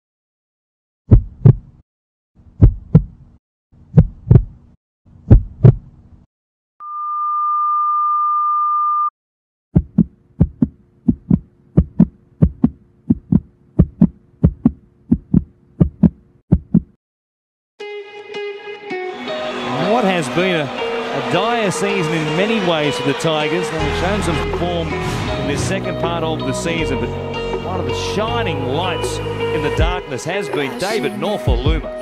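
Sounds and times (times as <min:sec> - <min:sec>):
heartbeat thumps: 0:01.1 - 0:01.7, 0:02.6 - 0:03.2, 0:03.9 - 0:04.6, 0:05.2 - 0:05.9, 0:09.8 - 0:17.0.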